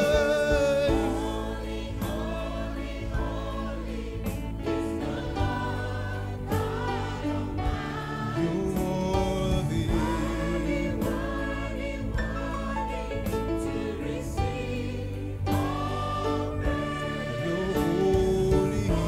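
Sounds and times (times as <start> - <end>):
choir singing gospel song: 0.0 - 19.0
man and woman leading singing: 0.0 - 19.0.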